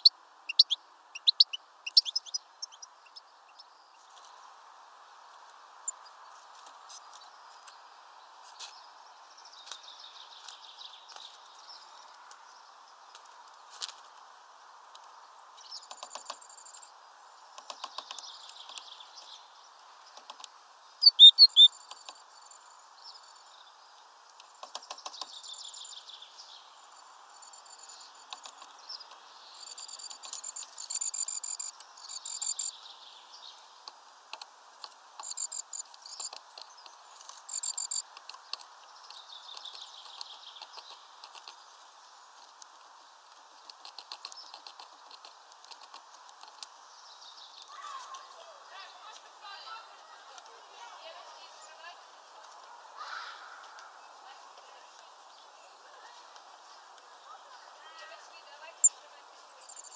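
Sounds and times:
birds chirping: 0.0 - 4.4, 15.0 - 34.0, 34.8 - 59.9
birds pecking and tapping on feeder: 15.0 - 16.9, 17.5 - 19.4, 20.1 - 20.6, 21.8 - 22.2, 24.3 - 25.6, 28.2 - 32.7, 33.8 - 41.7, 42.4 - 46.8.

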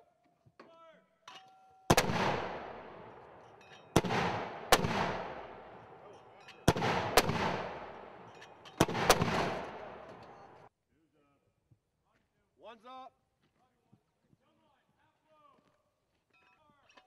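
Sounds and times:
mortars firing with echo: 1.9 - 10.7.

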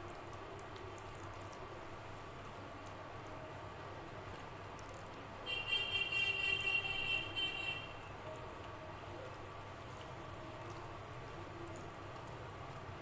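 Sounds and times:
food squelching being mixed by hand: 0.0 - 5.4, 8.0 - 13.0.

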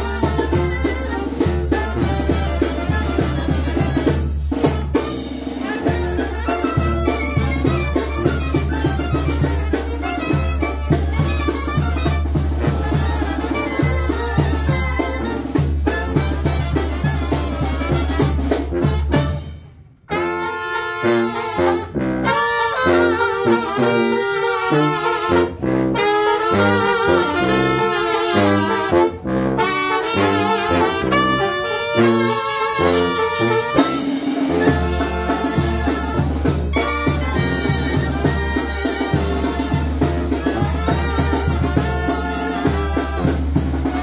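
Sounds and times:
drum beat: 0.0 - 19.4, 32.1 - 44.0
brass horns playing melody: 0.0 - 44.0.

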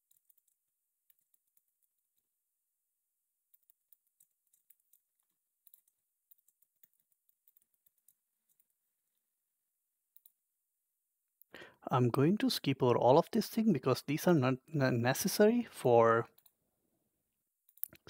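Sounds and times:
keyboard typing: 0.0 - 2.3, 3.5 - 8.8.

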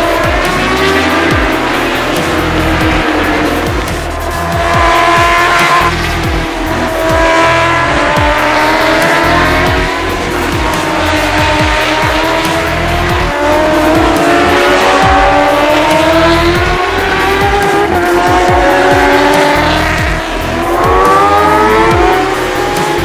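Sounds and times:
background music: 0.0 - 23.0
motorbike engines revving: 0.0 - 23.0.

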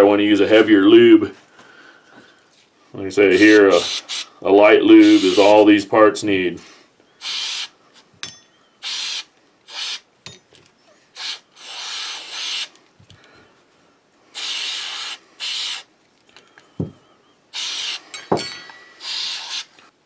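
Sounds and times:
aerosol can spraying: 3.3 - 4.3, 5.0 - 5.6, 7.2 - 7.7, 8.8 - 10.0, 11.2 - 12.7, 14.4 - 15.9, 17.6 - 18.0, 19.0 - 19.7.

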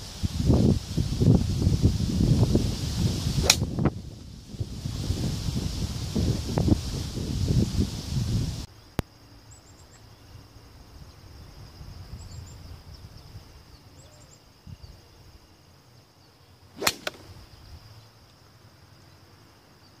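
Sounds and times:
golf club striking ball: 3.4 - 3.8, 16.8 - 17.4.

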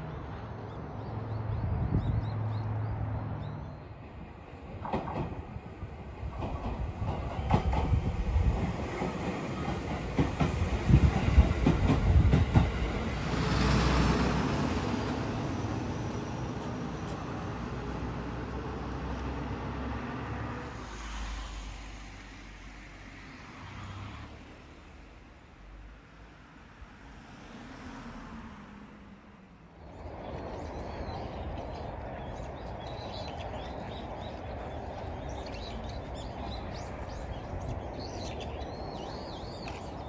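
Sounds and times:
train wheels clacking on rails: 4.7 - 18.2.

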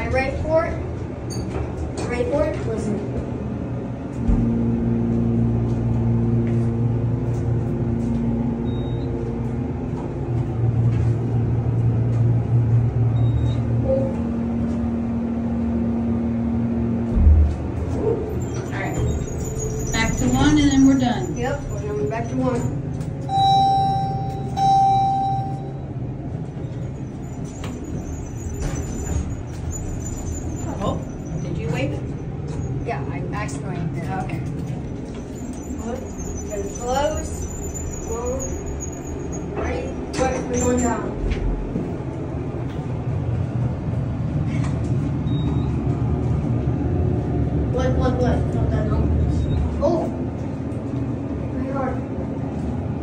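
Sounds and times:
elevator machinery hum: 0.0 - 53.0
elevator chime ding: 8.6 - 9.2, 13.2 - 13.7, 18.5 - 26.0
elevator door clicks: 22.9 - 25.7.

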